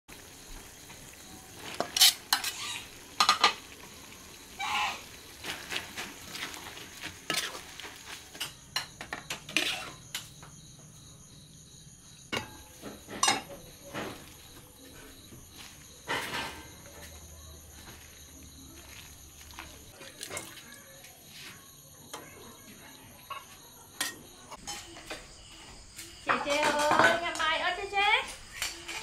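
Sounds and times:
soft sizzle: 0:00.1 - 0:29.0
metal spatula scraping pan: 0:01.6 - 0:03.6, 0:05.4 - 0:10.3.

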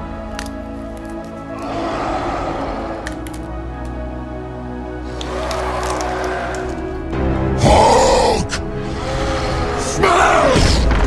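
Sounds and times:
dramatic background music: 0:00.0 - 0:11.0
loud roaring yell: 0:01.6 - 0:03.3, 0:05.1 - 0:06.8, 0:07.6 - 0:10.8.

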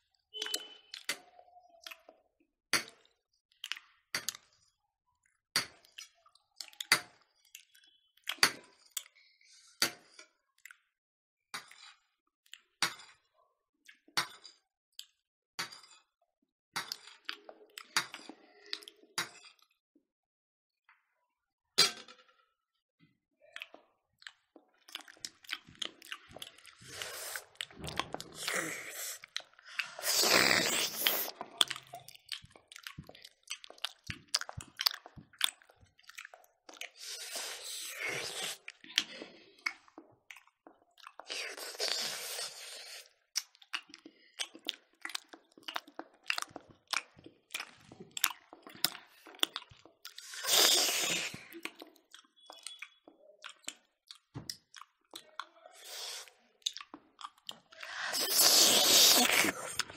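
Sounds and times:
chewing and mouth smacks: 0:00.4 - 0:02.2, 0:02.8 - 0:09.3, 0:10.0 - 0:10.9, 0:11.6 - 0:15.2, 0:16.8 - 0:19.8, 0:23.4 - 0:59.9.

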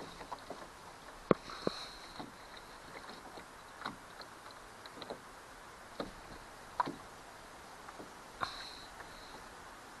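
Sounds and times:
light knocks and clicks: 0:00.0 - 0:05.2, 0:06.0 - 0:07.0.

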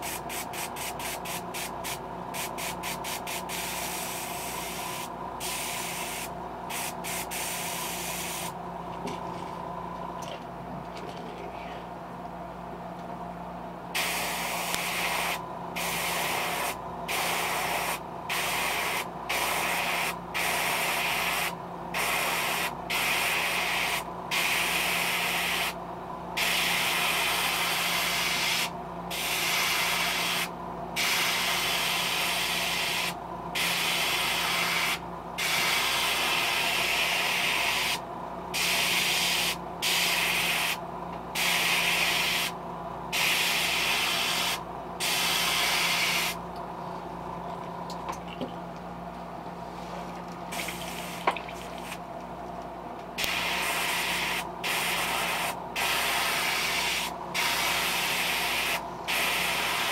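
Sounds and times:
airbrush spraying: 0:00.0 - 0:08.6, 0:14.0 - 0:25.8, 0:26.4 - 0:38.0, 0:38.6 - 0:40.8, 0:41.4 - 0:42.6, 0:43.2 - 0:46.4, 0:50.5 - 0:52.0, 0:53.2 - 0:59.9
steady low hum: 0:00.0 - 0:59.9.

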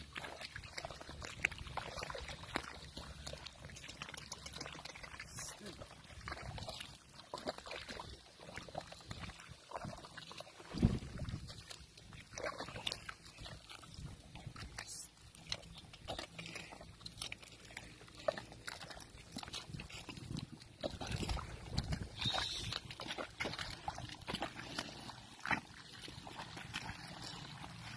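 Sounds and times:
legs sloshing in mud and water: 0:00.0 - 0:27.9.

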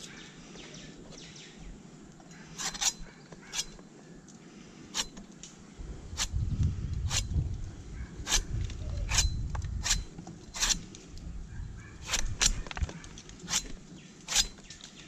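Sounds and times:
knife cutting plant: 0:02.4 - 0:03.8, 0:04.9 - 0:05.5, 0:06.2 - 0:07.4, 0:08.2 - 0:11.0, 0:12.0 - 0:15.0.

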